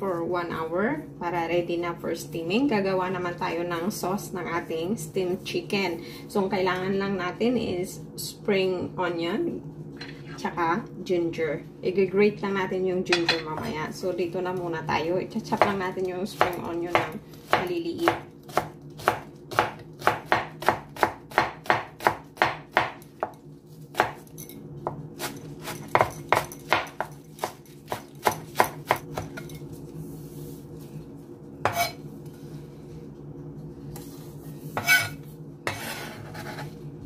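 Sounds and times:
steady low hum: 0:00.0 - 0:37.0
knife chopping on plastic board: 0:16.4 - 0:23.3.

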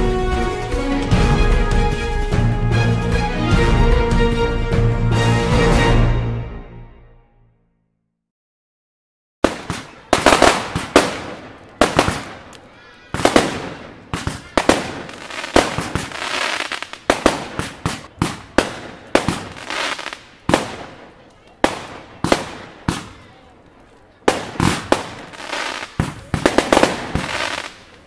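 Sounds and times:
fireworks bangs: 0:09.4 - 0:28.0
fireworks hissing: 0:09.6 - 0:21.0, 0:24.3 - 0:28.0.

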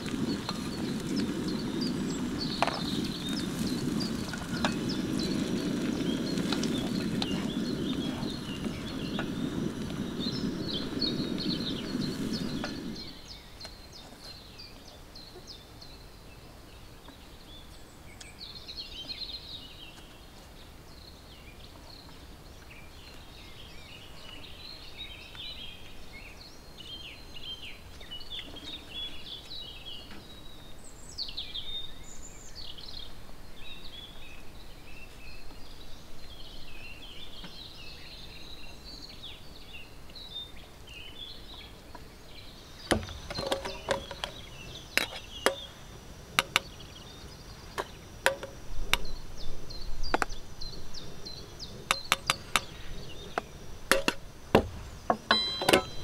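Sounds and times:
songbirds chirping: 0:00.0 - 0:56.0
tableware clicking on wooden table: 0:55.1 - 0:56.0.

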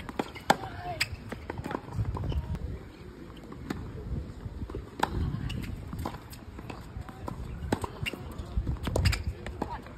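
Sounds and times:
tennis racket hitting ball: 0:00.0 - 0:01.8.

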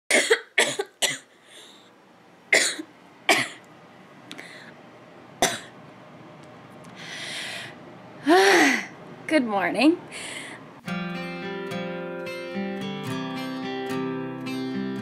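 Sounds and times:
woman coughing: 0:00.1 - 0:01.3, 0:02.6 - 0:03.6, 0:05.4 - 0:05.8
woman breathing in: 0:01.4 - 0:01.9, 0:04.3 - 0:04.8, 0:07.0 - 0:09.0, 0:10.1 - 0:10.7.

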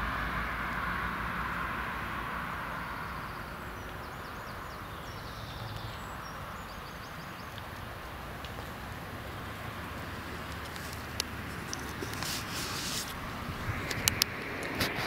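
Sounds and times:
background hiss: 0:00.0 - 0:15.0
songbird chirping: 0:02.5 - 0:14.7
low rumble: 0:13.1 - 0:15.0.

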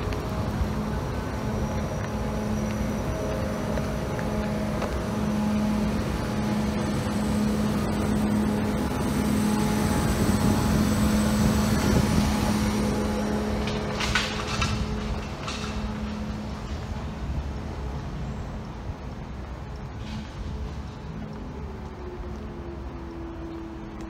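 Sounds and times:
truck engine idling: 0:00.0 - 0:17.5.

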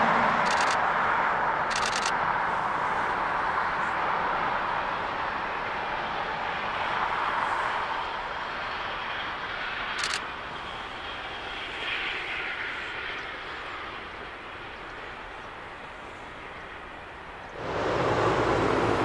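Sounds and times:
steam train exhaust rushing: 0:17.6 - 0:19.0.

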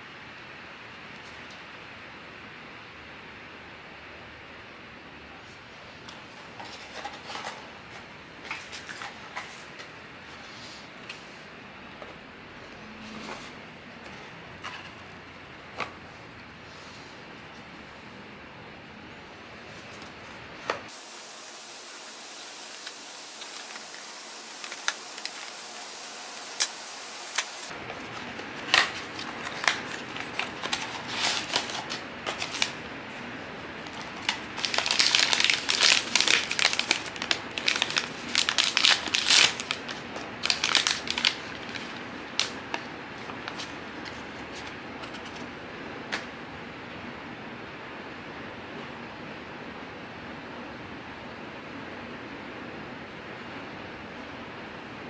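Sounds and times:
packaging crinkling and tearing: 0:22.5 - 0:32.9, 0:33.7 - 0:45.4.

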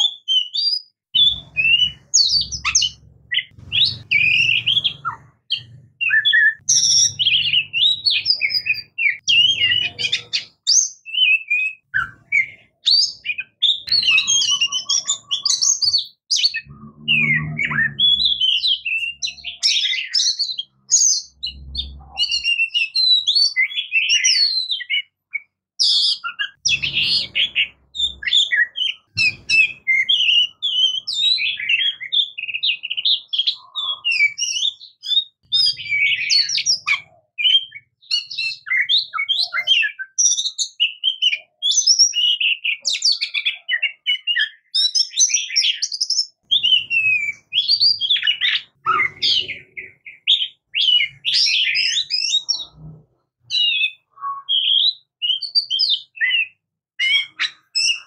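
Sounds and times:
bird singing: 0:00.0 - 0:58.0.

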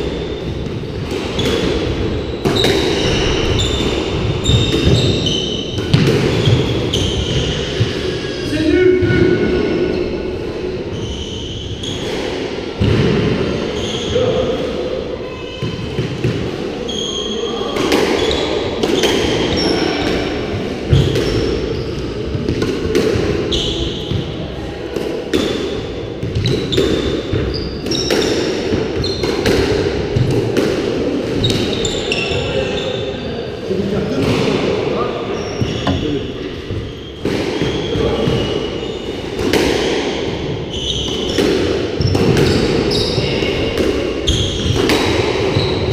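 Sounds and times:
shoes squeaking on wooden floor: 0:35.3 - 0:37.2
ball smacking court walls: 0:35.7 - 0:36.6
squash ball hit by rackets: 0:35.8 - 0:36.6.

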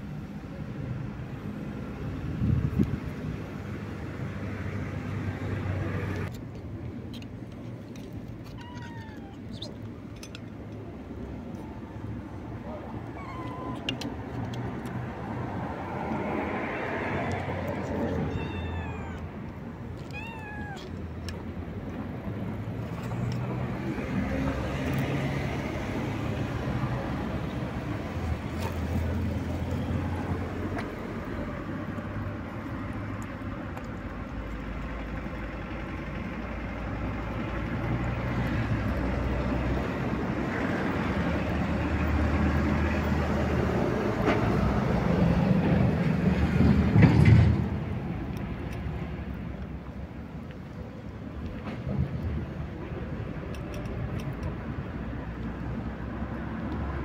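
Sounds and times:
cat meowing: 0:08.4 - 0:09.7, 0:13.0 - 0:14.0, 0:17.9 - 0:19.3, 0:20.0 - 0:21.0.

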